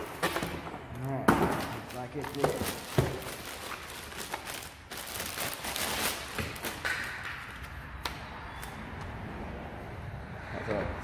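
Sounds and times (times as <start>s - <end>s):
plastic bag crinkling: 1.9s - 6.8s.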